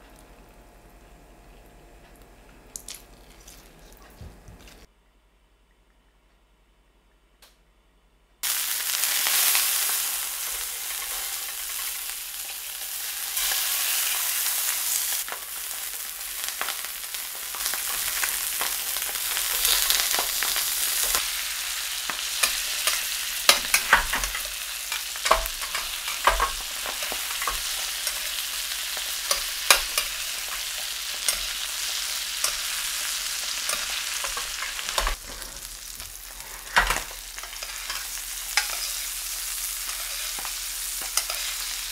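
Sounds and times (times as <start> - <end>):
fish sizzling in frying pan: 8.4 - 41.9
metal spoon clicking on pan: 22.1 - 35.2.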